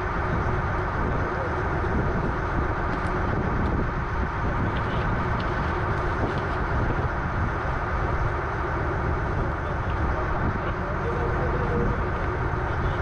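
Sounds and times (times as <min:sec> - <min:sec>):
boat engine droning: 0:00.0 - 0:13.0.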